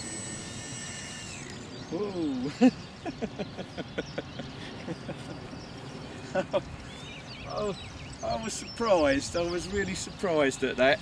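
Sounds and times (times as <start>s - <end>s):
model helicopter motor whine: 0.0s - 2.3s.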